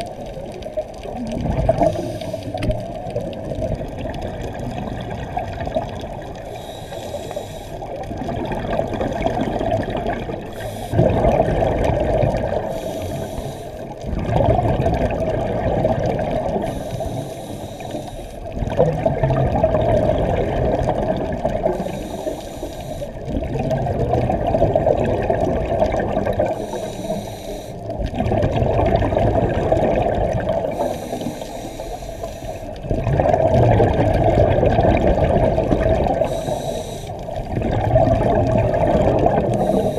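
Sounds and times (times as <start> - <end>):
bubbly exhalations underwater: 0.0 - 6.7, 7.8 - 17.2, 18.4 - 22.3, 23.1 - 27.1, 27.9 - 31.5, 32.7 - 39.9
hissing regulator inhalations: 1.9 - 2.8, 6.4 - 7.9, 10.5 - 11.0, 12.6 - 14.0, 16.6 - 18.5, 21.7 - 23.3, 26.5 - 28.0, 30.7 - 32.8, 36.2 - 37.4, 39.5 - 39.9.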